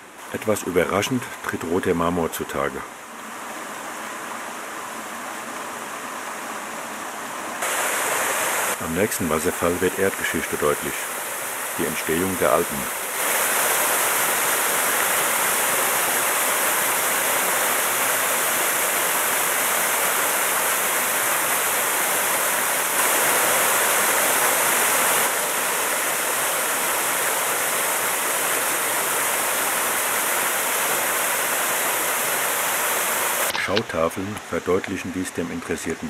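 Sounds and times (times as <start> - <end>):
waterfall rushing: 7.6 - 36.0.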